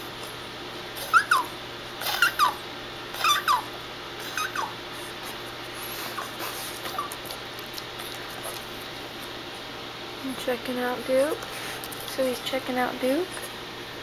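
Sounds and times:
dog whimpering: 1.0s - 4.8s, 5.8s - 7.4s.

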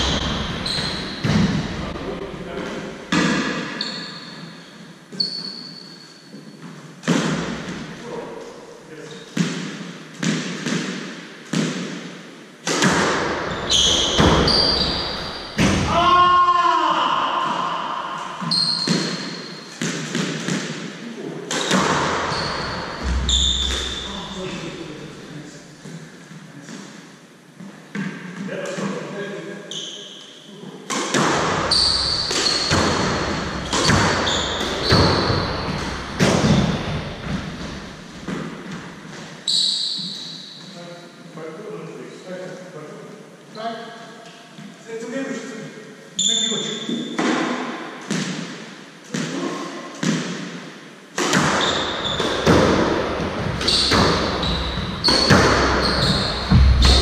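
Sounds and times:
shoes squeaking on wooden floor: 0.0s - 1.5s, 3.7s - 6.8s, 13.5s - 15.6s, 18.4s - 19.8s, 22.2s - 24.3s, 31.7s - 40.8s, 53.5s - 57.0s
squash ball hitting rackets and walls: 0.0s - 1.9s, 2.7s - 4.5s, 6.6s - 8.0s, 9.3s - 16.0s, 18.4s - 24.4s, 30.8s - 40.3s, 46.9s - 57.0s.

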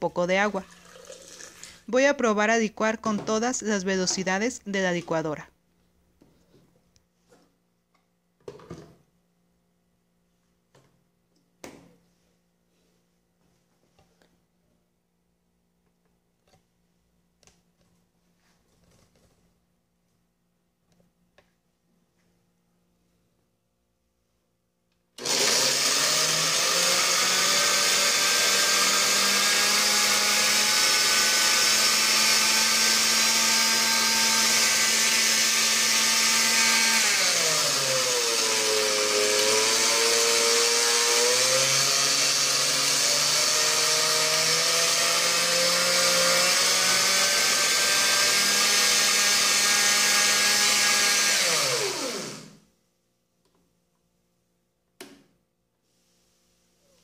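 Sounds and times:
blender motor blending: 25.2s - 52.6s.

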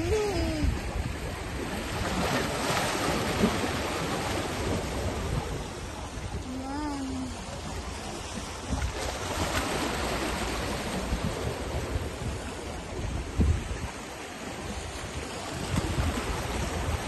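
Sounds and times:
wind thumping on microphone: 0.0s - 6.6s, 10.8s - 14.0s, 15.0s - 17.0s
waves splashing against rocks: 0.0s - 17.0s.

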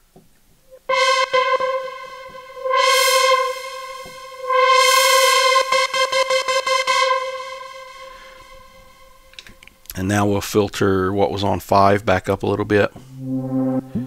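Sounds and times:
synthesizer filter sweep: 0.8s - 9.3s, 13.1s - 14.0s.

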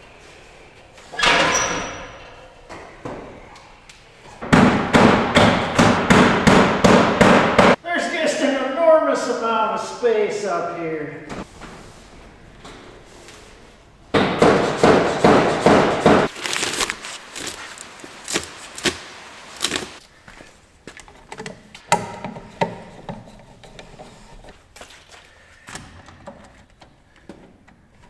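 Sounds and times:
knocking and scraping: 21.1s - 24.6s.

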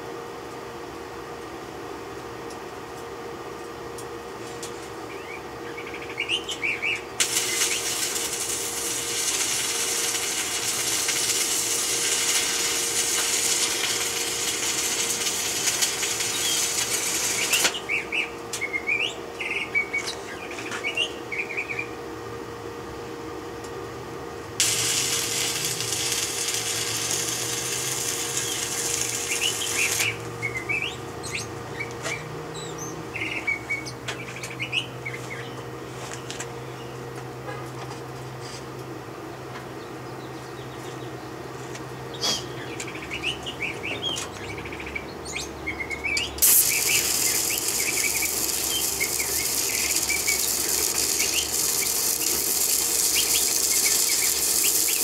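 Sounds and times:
steady hum: 3.2s - 37.1s, 40.0s - 55.0s
birds chirping: 5.1s - 8.0s, 15.9s - 22.0s, 26.2s - 37.0s, 39.7s - 55.0s
arc welding crackling hiss: 7.2s - 18.1s, 24.6s - 31.7s, 46.4s - 55.0s.

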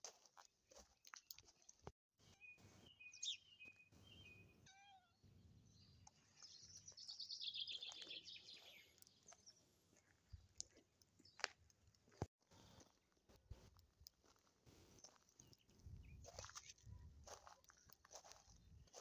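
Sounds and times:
birds chirping: 1.2s - 12.9s.

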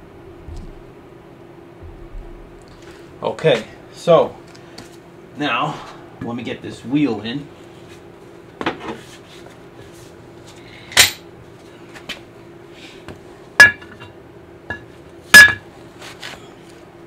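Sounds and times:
metal clanks and knocks: 13.6s - 14.1s, 14.7s - 15.7s.

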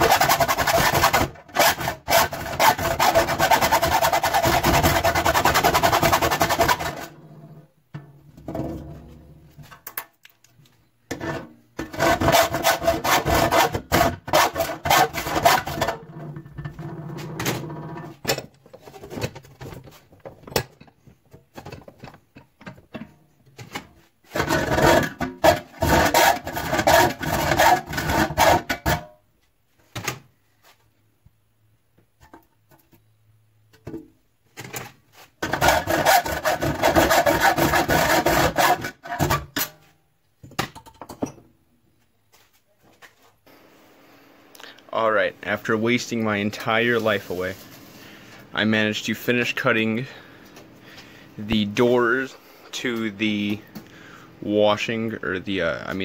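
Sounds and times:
saw rasping through sheet steel: 0.0s - 7.2s, 11.9s - 16.1s, 24.3s - 29.0s, 35.4s - 39.5s.

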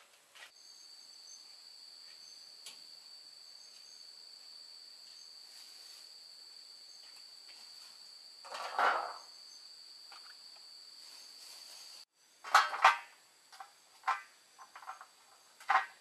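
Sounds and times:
crickets trilling: 0.5s - 16.0s
green beans rustled on a metal tray: 5.5s - 6.1s, 11.0s - 16.0s.

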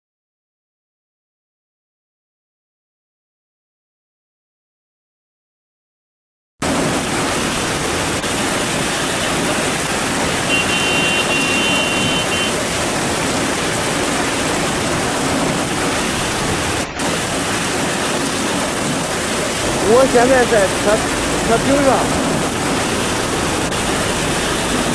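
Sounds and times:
heavy rain pouring: 6.6s - 24.9s.

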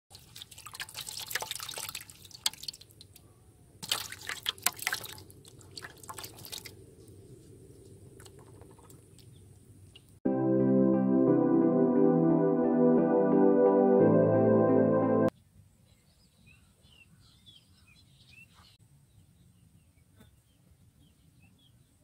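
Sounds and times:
fish splashing in water: 0.1s - 3.0s, 3.8s - 6.8s.

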